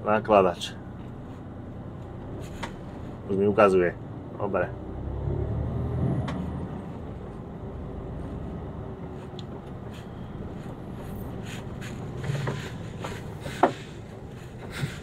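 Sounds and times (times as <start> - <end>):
truck diesel engine running: 6.6 - 15.0.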